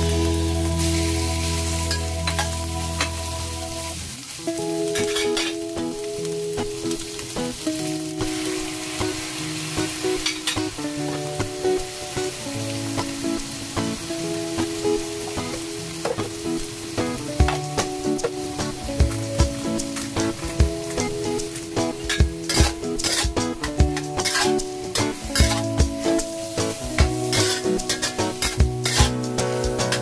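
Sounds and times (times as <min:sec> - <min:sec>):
soft background tune: 0:00.0 - 0:30.0
vegetables and egg sizzling in a wok: 0:00.0 - 0:30.0
metal spatula scraping a pan: 0:04.9 - 0:05.6, 0:10.1 - 0:10.7, 0:21.8 - 0:30.0.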